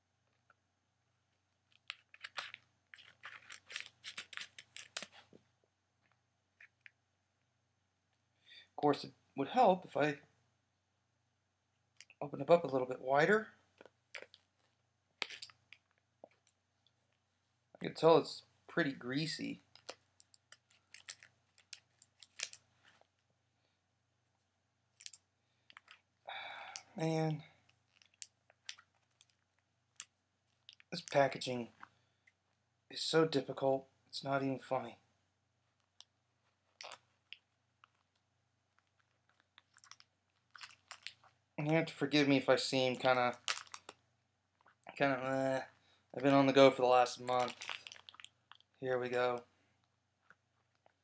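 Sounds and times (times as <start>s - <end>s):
plastic packaging crinkling: 1.8s - 5.2s, 19.7s - 23.0s, 38.9s - 41.3s, 43.3s - 44.0s, 47.2s - 48.8s
plastic package crackling: 43.4s - 44.0s, 47.3s - 48.7s.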